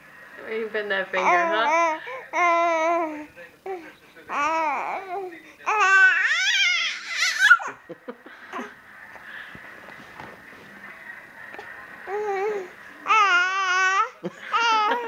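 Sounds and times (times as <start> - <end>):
faint handling noises: 9.1 - 12.0.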